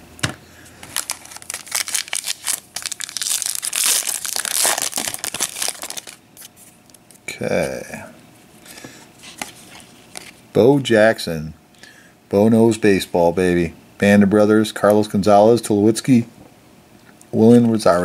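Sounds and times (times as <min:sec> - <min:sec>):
foil wrapper crinkling: 0:00.8 - 0:07.2
handling of cards: 0:00.8 - 0:07.8, 0:08.8 - 0:10.4.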